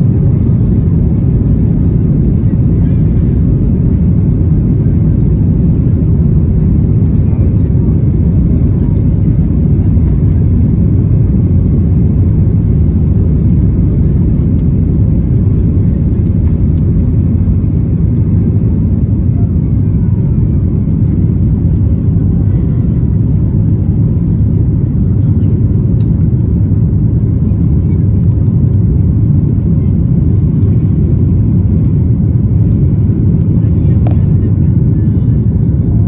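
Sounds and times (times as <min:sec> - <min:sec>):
jet engine deep rumble in cabin: 0:00.0 - 0:36.0.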